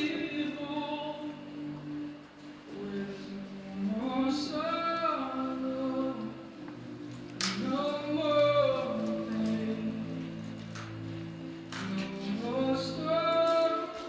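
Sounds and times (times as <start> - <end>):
person singing slow song: 0.0 - 14.0
sustained backing chords: 0.0 - 14.0.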